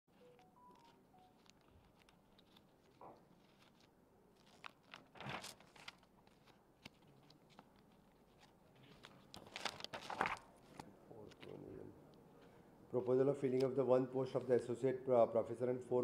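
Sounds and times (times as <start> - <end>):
paper rustling: 0.1 - 11.6.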